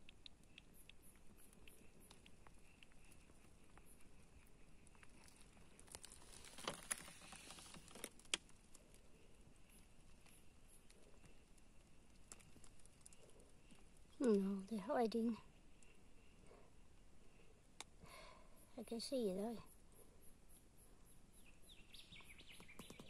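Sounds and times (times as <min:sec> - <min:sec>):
crackling clicks: 0:00.0 - 0:14.5
faint ticks: 0:00.0 - 0:14.5.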